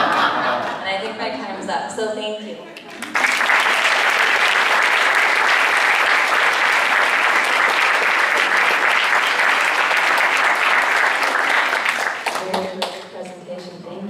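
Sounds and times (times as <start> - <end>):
audience applause: 2.9 - 13.0.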